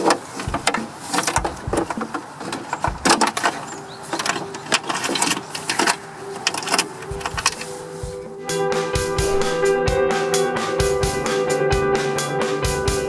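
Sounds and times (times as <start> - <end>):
plastic connectors rattling and clicking: 0.0 - 7.7.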